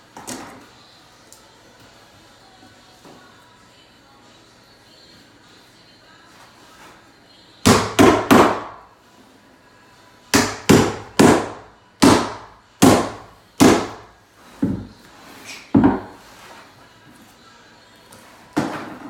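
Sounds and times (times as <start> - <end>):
hammer driving nails into wood: 7.7 - 8.8, 10.4 - 14.8.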